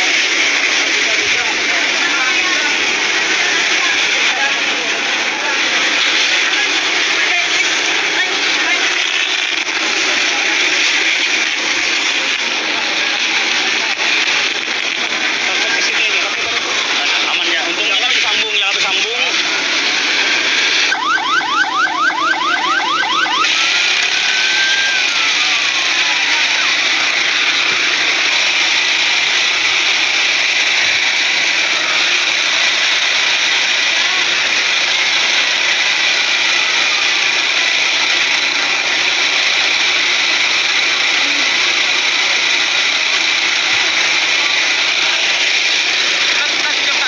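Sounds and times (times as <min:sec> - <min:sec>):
loud rushing noise: 0:00.0 - 0:47.0
emergency siren yelping: 0:20.8 - 0:29.4.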